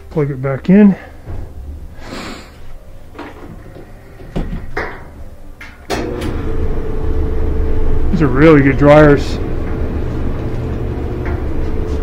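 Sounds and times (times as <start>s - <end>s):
dryer drum motor humming: 5.9s - 12.0s.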